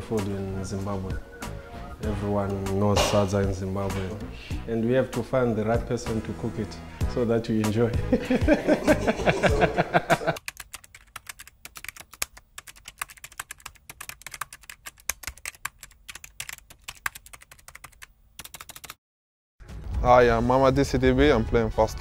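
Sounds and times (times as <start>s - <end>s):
background music: 0.0s - 10.4s, 19.6s - 22.0s
person speaking: 2.0s - 10.4s.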